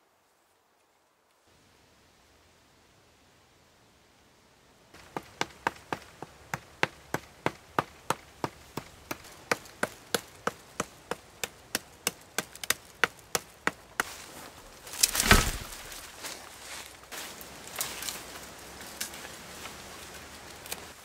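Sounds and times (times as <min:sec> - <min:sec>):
stone axe chopping wood: 0:05.0 - 0:14.2, 0:14.9 - 0:16.1.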